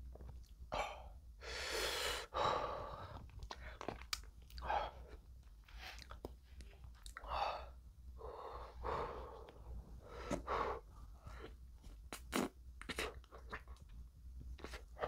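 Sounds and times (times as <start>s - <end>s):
heavy breathing: 0.8s - 3.9s, 7.2s - 11.6s
eating mouth sounds: 12.1s - 13.9s.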